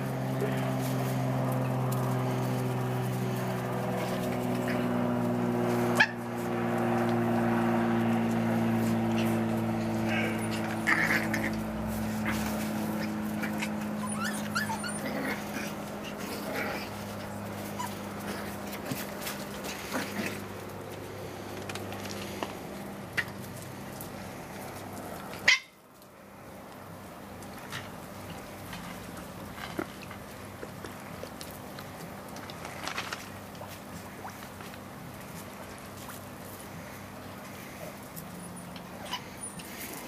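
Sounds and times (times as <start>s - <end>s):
steady mechanical hum: 0.0s - 40.0s
puppies yipping and whimpering: 4.0s - 6.4s, 8.9s - 20.5s, 25.4s - 25.8s, 37.6s - 40.0s.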